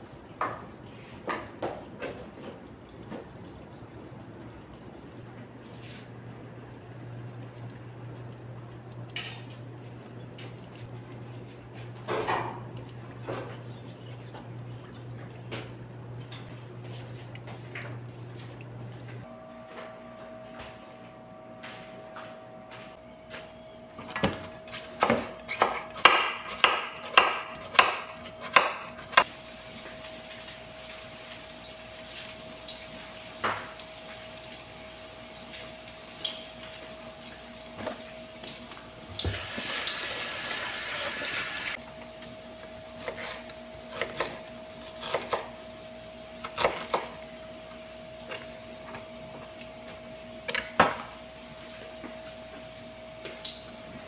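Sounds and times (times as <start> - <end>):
tap running: 0.4 - 30.6, 31.6 - 44.4
steady hum: 3.5 - 29.6
knife chopping on wooden board: 25.0 - 29.2.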